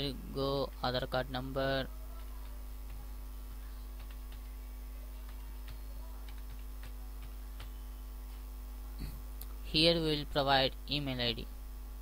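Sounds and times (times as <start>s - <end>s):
low electrical hum: 0.0s - 12.0s
computer keys clicking: 3.8s - 8.5s.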